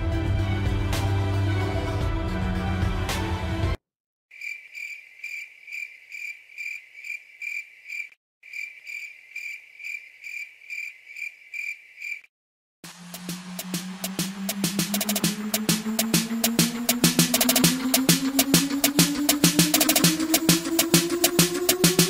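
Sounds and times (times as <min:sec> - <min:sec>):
drum-backed music track: 0:00.0 - 0:03.8, 0:12.9 - 0:22.0
music: 0:00.0 - 0:03.8, 0:12.9 - 0:22.0
cricket chirp sound effect: 0:04.4 - 0:12.3.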